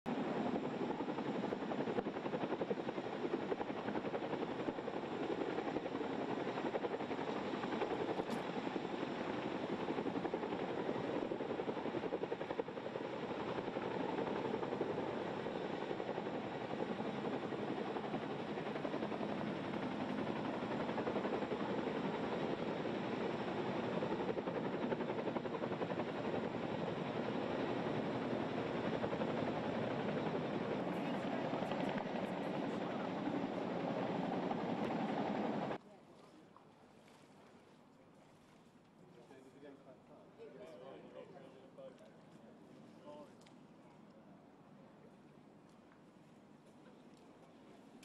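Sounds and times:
helicopter rotor chopping: 0:00.1 - 0:35.8.

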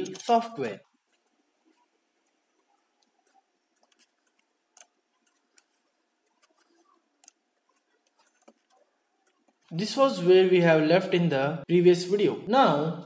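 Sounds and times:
computer mouse clicks: 0:01.1 - 0:09.7.

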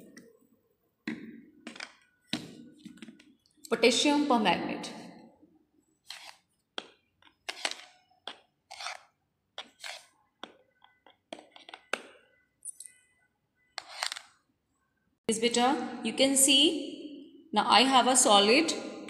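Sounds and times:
crystals clicking and scraping: 0:07.5 - 0:10.1.

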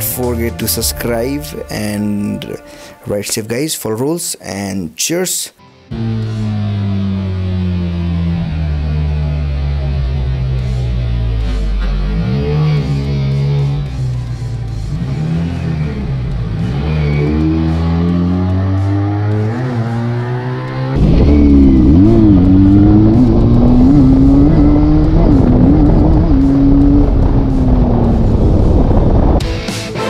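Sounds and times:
motorcycle engine accelerating: 0:05.9 - 0:29.6.

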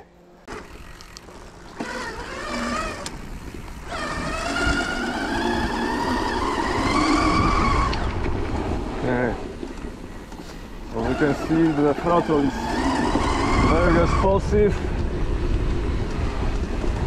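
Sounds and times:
electric motor whine: 0:00.5 - 0:08.6.

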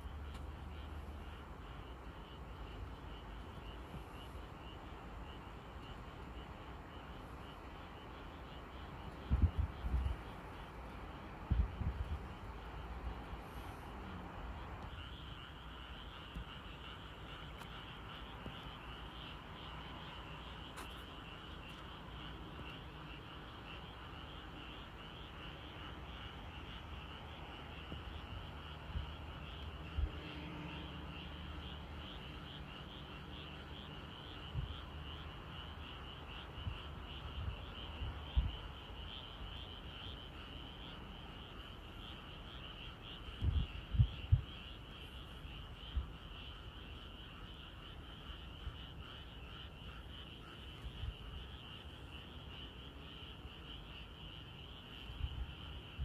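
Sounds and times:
frogs trilling: 0:00.0 - 0:56.0.

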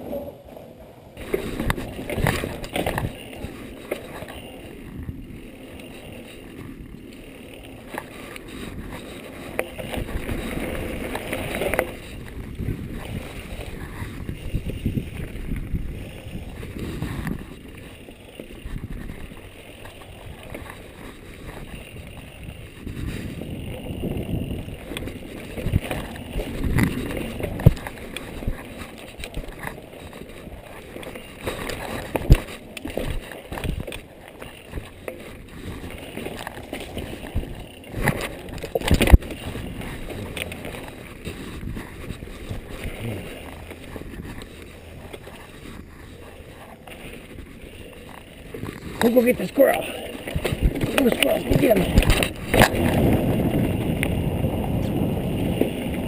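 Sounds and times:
bike rattling over bumps: 0:00.0 - 0:56.0
bike tyres rolling on dirt: 0:00.0 - 0:56.0.

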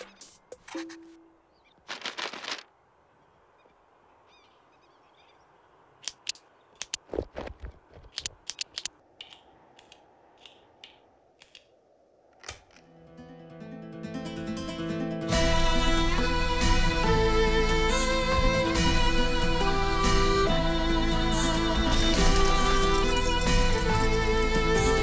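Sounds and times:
guitar music: 0:12.9 - 0:25.0.

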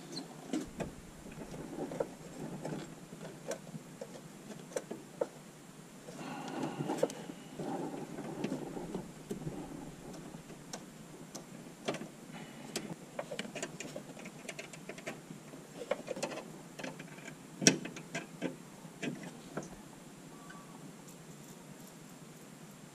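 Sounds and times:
rustling: 0:00.0 - 0:05.4, 0:06.0 - 0:17.4.

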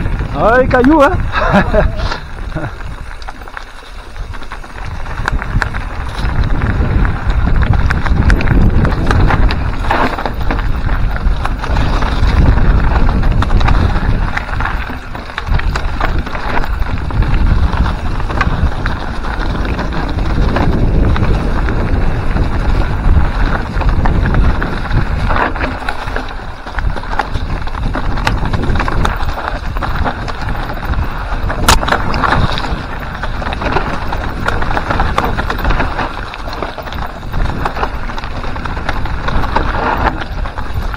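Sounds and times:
bike rattling clicks and knocks: 0:00.0 - 0:40.9
tyres crunching over stones: 0:00.0 - 0:40.9
wind buffeting microphone: 0:00.0 - 0:40.9.

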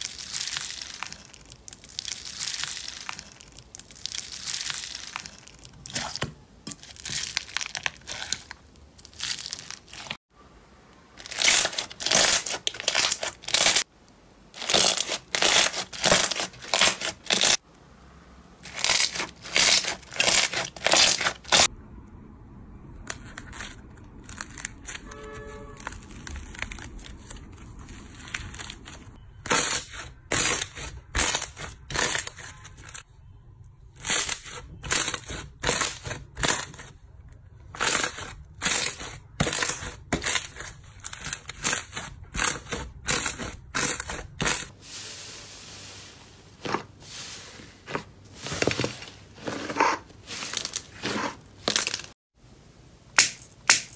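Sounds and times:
slime crackling and squishing: 0:00.0 - 0:10.3, 0:11.1 - 0:13.9, 0:14.5 - 0:17.6, 0:18.6 - 0:21.7, 0:23.0 - 0:33.1, 0:33.9 - 0:45.4.

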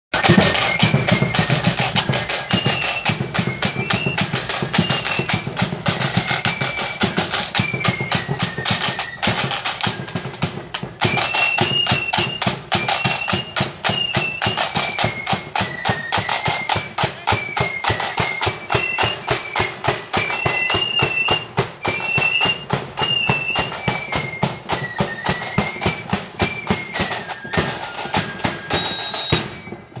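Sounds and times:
flute band playing tune: 0:00.1 - 0:30.0
snare drum beats and rolls: 0:00.1 - 0:30.0.

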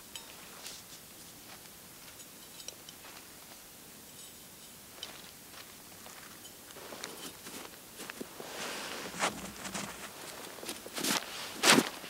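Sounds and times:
snow crunching in metal pot: 0:06.8 - 0:12.0.

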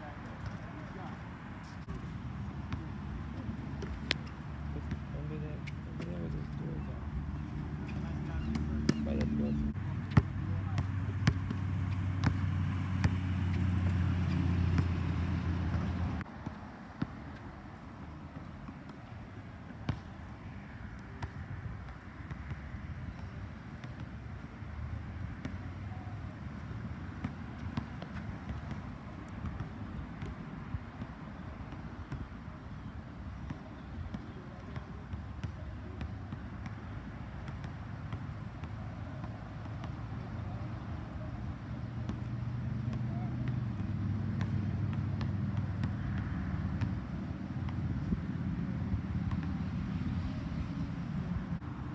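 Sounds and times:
basketball bouncing on court: 0:02.7 - 0:06.4, 0:07.9 - 0:09.4, 0:10.0 - 0:17.4, 0:19.8 - 0:24.2, 0:24.8 - 0:32.3, 0:33.4 - 0:48.2, 0:49.2 - 0:49.7.

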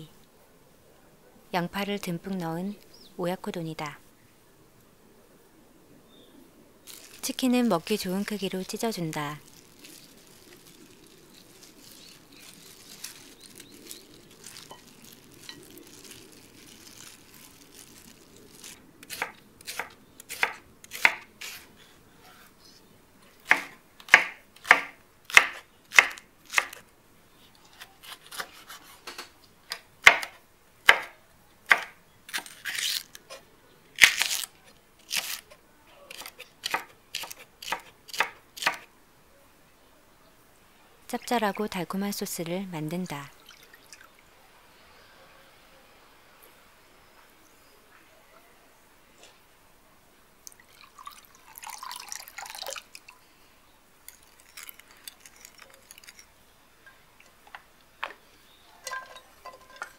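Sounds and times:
faint rustling: 0:06.8 - 0:18.8.

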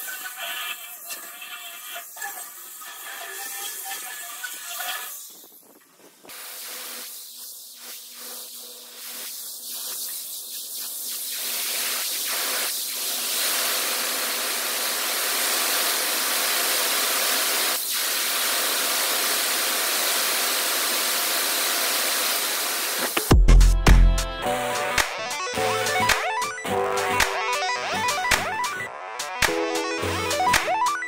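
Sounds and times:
paint spray gun hissing: 0:06.2 - 0:23.3.

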